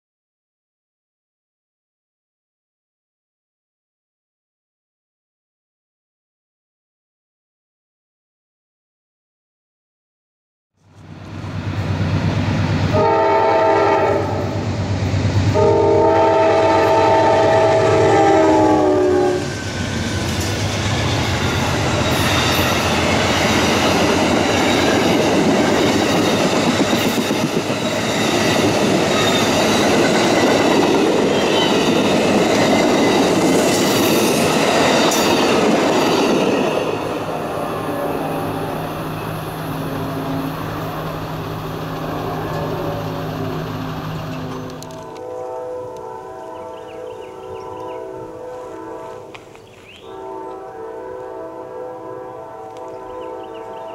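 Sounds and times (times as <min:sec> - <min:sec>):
locomotive horn: 0:12.9 - 0:14.7, 0:15.5 - 0:19.8, 0:30.2 - 0:33.8, 0:36.8 - 0:49.4, 0:50.0 - 0:53.9
train wheels clacking on rails: 0:19.4 - 0:37.9.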